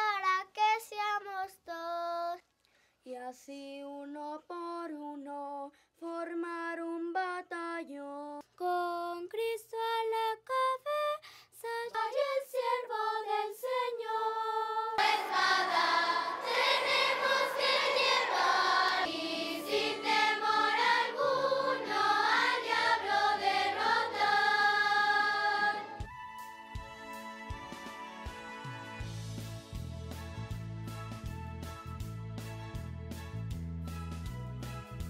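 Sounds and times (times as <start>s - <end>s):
child singing: 0.0s - 2.4s, 3.1s - 26.0s
children's choir singing: 11.7s - 26.1s.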